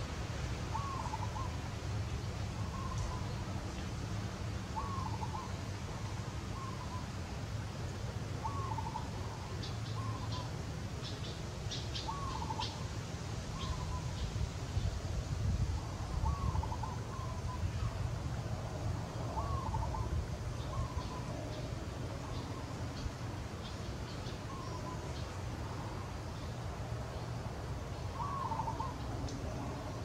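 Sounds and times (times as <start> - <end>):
bird calling: 0.7 - 1.6, 2.6 - 3.4, 4.7 - 7.1, 8.4 - 12.9, 13.6 - 14.3, 16.1 - 18.0, 19.3 - 25.8, 27.9 - 30.0.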